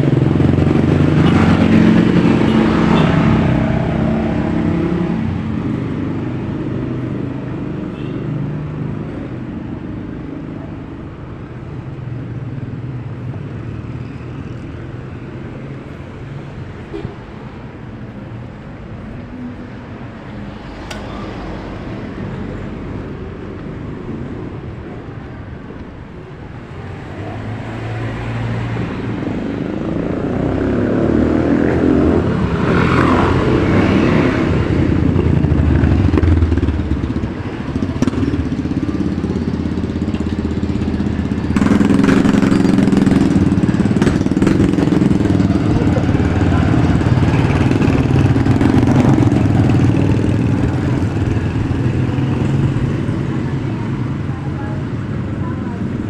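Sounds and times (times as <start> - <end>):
loud engine running close: 0.0 - 11.0, 29.0 - 56.0
motorcycle engines passing: 0.0 - 56.0.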